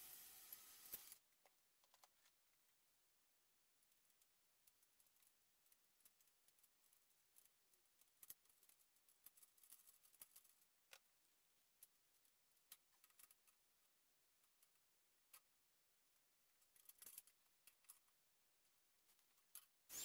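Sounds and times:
metal parts clicking and tapping: 4.0 - 11.2, 16.6 - 18.2.

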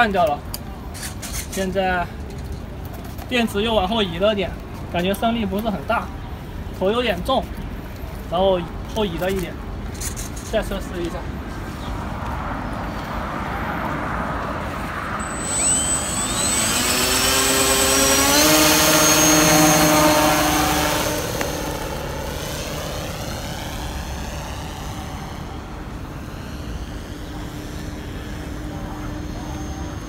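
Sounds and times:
electric model plane motor whining: 15.2 - 30.0.

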